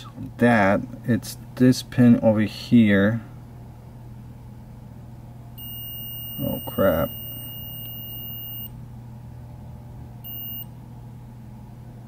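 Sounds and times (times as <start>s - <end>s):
steady low hum: 0.0s - 12.0s
multimeter continuity beeping: 5.6s - 8.8s, 10.2s - 10.7s.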